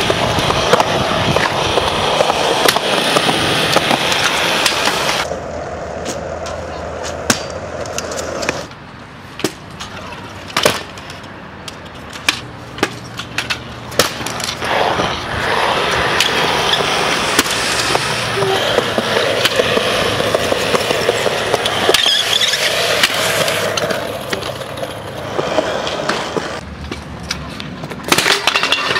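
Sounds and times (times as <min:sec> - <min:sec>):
scooter wheels clacking: 0:00.0 - 0:28.9
scooter wheels rolling on concrete: 0:00.0 - 0:28.9.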